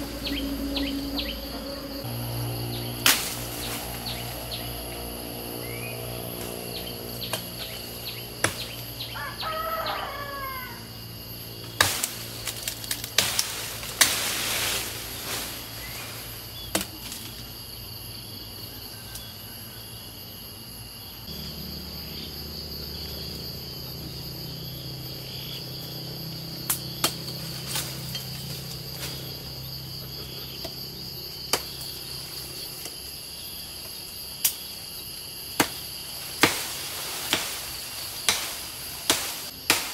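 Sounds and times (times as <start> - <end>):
bird calling: 0.0 - 2.0
leaves rustling: 0.0 - 17.7, 26.8 - 30.4, 35.0 - 39.9
insects droning: 0.0 - 39.9
machete chopping branches: 3.0 - 4.3, 7.2 - 8.9, 11.6 - 16.0, 16.6 - 17.4, 26.6 - 29.2, 31.4 - 31.9, 35.5 - 39.9.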